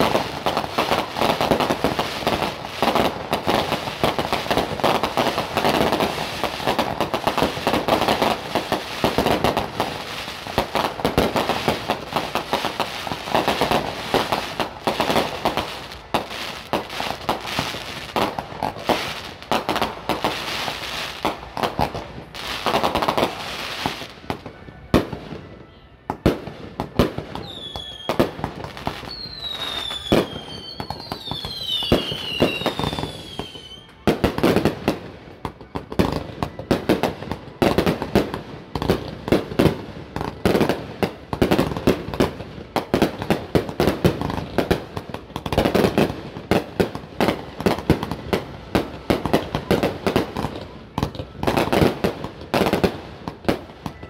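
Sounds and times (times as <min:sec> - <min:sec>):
firework bangs: 0:00.0 - 0:25.4, 0:26.1 - 0:54.0
firework crackling: 0:00.0 - 0:25.5, 0:26.2 - 0:54.0
firework whistles falling in pitch: 0:27.4 - 0:34.7.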